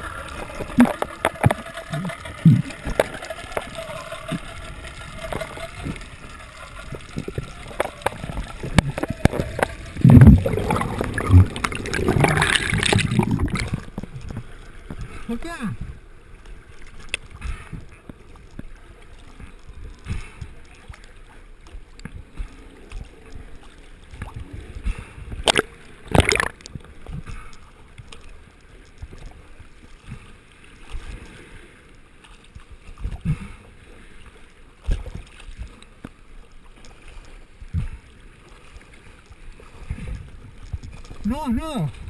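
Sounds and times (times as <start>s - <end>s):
waves thumping camera: 0.0s - 16.0s, 24.2s - 27.4s
sea water sloshing and slapping: 0.0s - 42.0s
loud splash: 8.7s - 13.9s, 25.4s - 26.6s.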